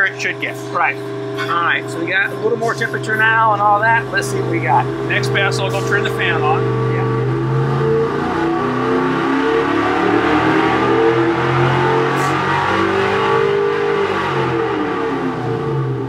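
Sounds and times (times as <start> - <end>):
racing engine revving at full throttle: 0.0 - 16.0.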